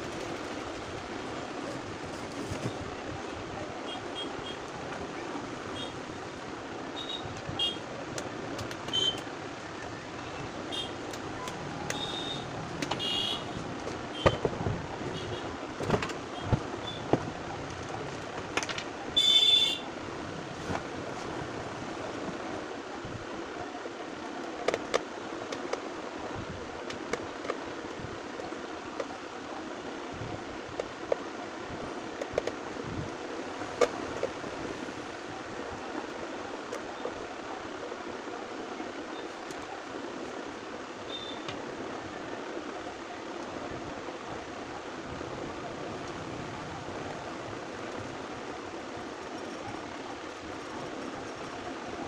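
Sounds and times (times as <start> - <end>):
steady background noise: 0.0 - 52.0.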